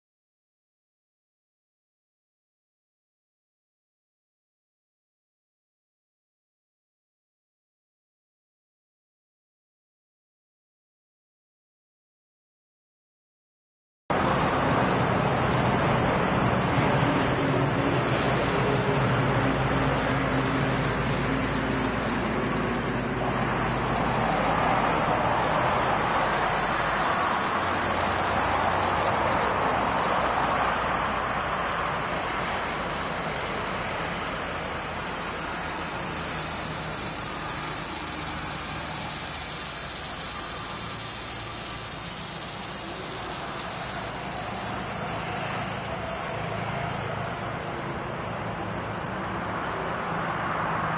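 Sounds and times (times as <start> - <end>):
cicada buzzing: 14.1 - 50.5.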